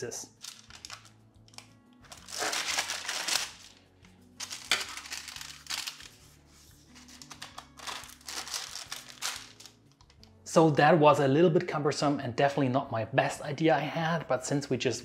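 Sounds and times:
parchment paper crinkling: 0.4s - 3.8s, 4.4s - 9.8s.

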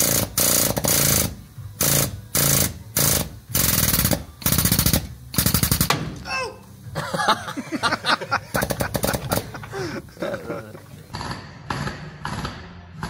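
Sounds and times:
air impact tool hammering: 0.0s - 6.3s, 8.5s - 9.7s.

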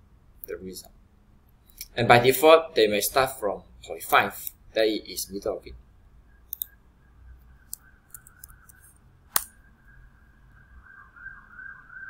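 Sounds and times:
faint steady whine: 0.0s - 12.0s
computer mouse clicks: 6.5s - 6.8s, 7.7s - 9.5s.

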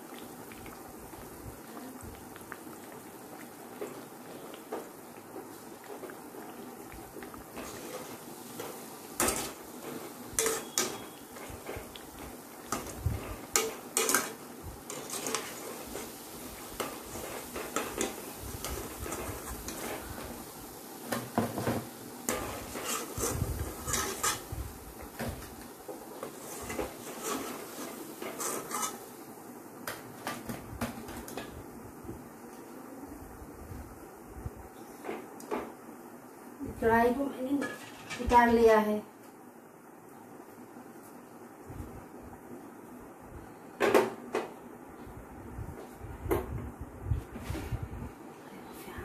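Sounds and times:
oil sizzling: 0.0s - 32.5s
metal skimmer scraping metal pan: 9.2s - 11.8s, 22.3s - 24.5s, 26.4s - 29.0s.

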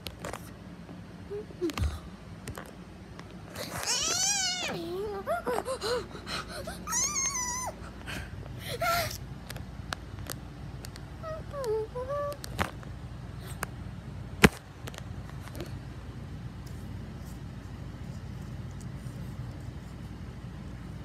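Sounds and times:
high-pitched wailing and whimpering: 3.6s - 8.0s, 11.2s - 12.4s.

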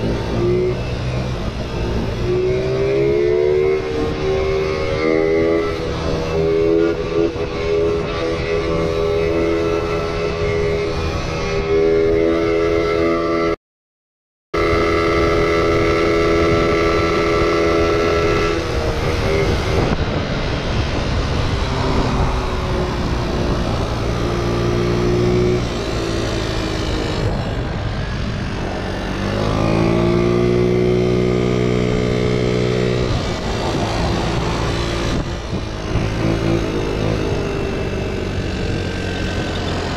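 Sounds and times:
road and wind noise: 0.0s - 13.6s, 14.6s - 39.9s
motor scooter engine accelerating: 14.6s - 39.9s.

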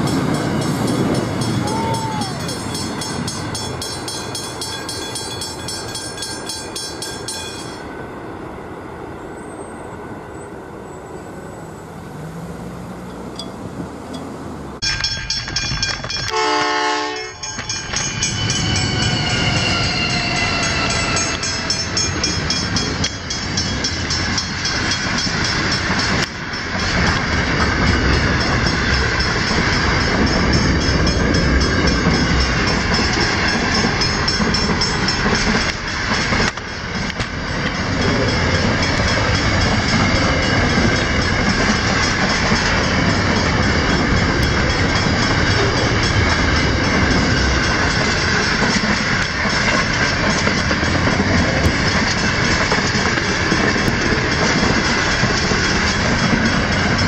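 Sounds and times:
train wagons rumbling on rails: 0.0s - 57.0s
train horn blast: 16.2s - 17.5s.

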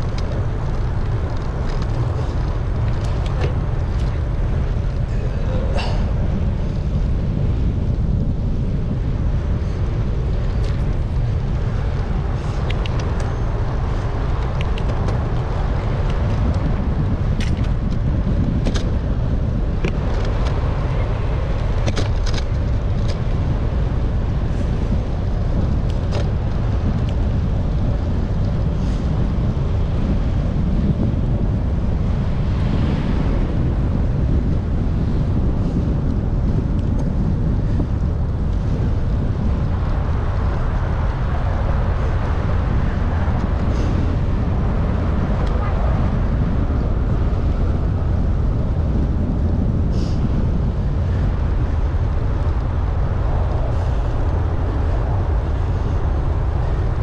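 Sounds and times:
wind buffeting microphone: 0.0s - 57.0s
small clicks and rattles: 21.5s - 23.4s.

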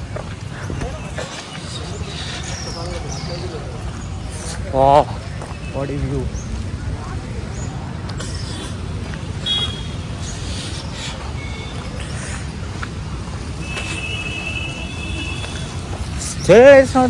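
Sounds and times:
distant road traffic rumble: 0.0s - 17.0s.

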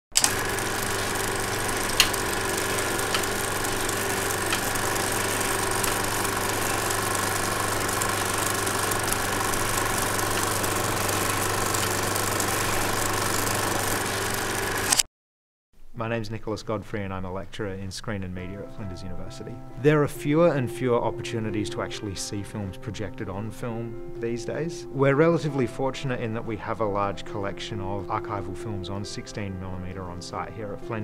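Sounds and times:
film projector whirring: 0.1s - 15.1s
sharp clicks: 0.1s - 15.1s.

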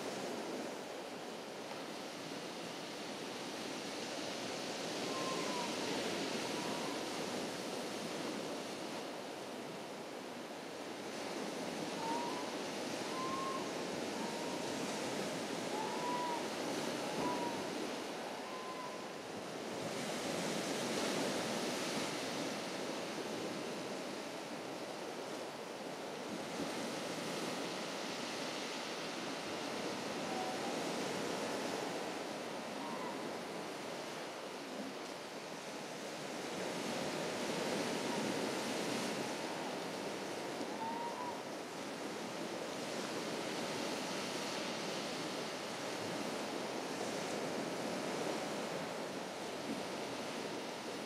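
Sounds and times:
sea waves breaking on beach: 41.6s - 51.0s.

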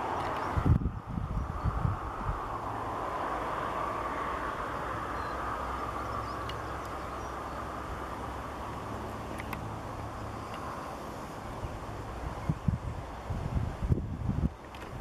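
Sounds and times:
outdoor rumble and hiss: 0.0s - 15.0s
faint ticks: 10.4s - 10.8s.

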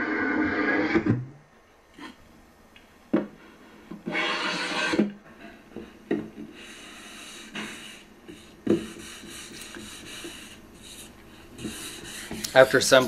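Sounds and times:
sandpaper rubbing on wood: 4.1s - 5.0s.

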